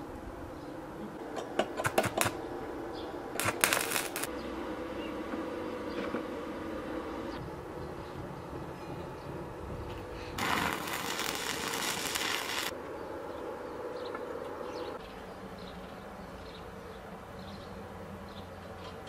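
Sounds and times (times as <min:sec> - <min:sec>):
arc welding crackle: 0:03.4 - 0:04.3, 0:10.4 - 0:12.8.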